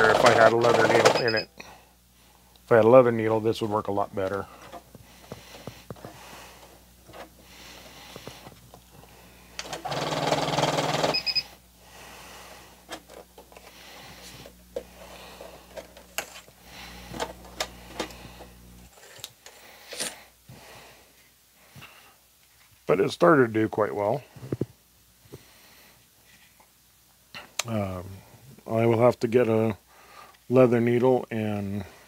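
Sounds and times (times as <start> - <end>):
sewing machine stitching leather: 0.0 - 1.4, 9.6 - 11.4.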